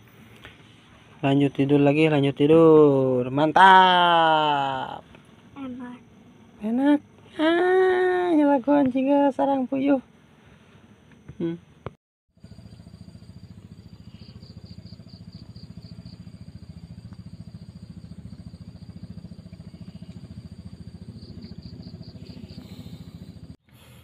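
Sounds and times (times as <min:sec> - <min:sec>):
engine low thudding: 0:12.4 - 0:24.0.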